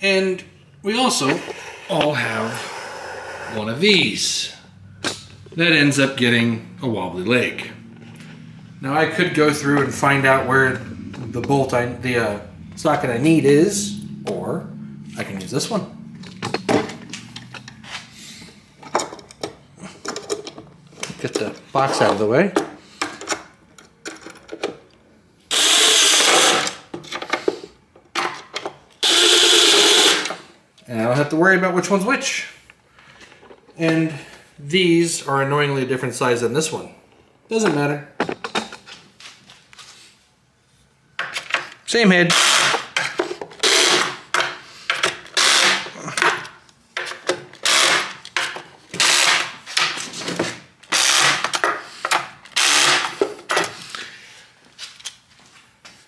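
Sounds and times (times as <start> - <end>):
cordless drill running: 25.5 - 26.7, 29.0 - 30.3, 42.3 - 42.9, 43.6 - 44.1, 45.4 - 45.8, 47.6 - 48.1, 49.0 - 49.4, 50.9 - 51.4, 52.6 - 53.1.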